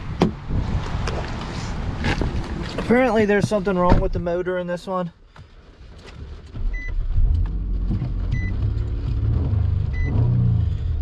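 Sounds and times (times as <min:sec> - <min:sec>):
car engine starting and idling: 0:05.4 - 0:11.0.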